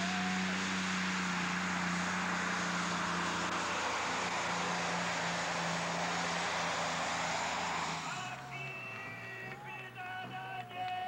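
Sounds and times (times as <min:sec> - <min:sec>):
diesel engine droning under load: 0:00.0 - 0:11.0.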